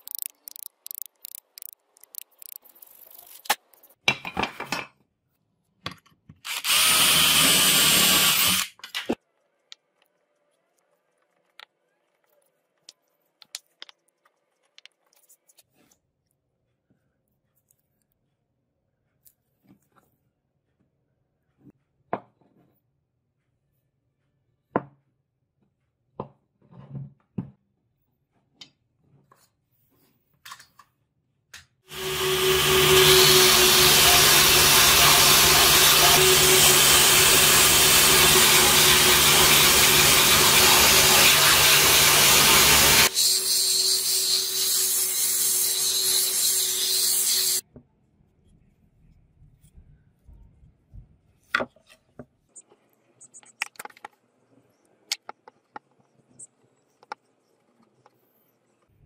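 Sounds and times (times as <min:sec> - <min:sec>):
belt sander grinding wood: 0:31.9 - 0:47.6.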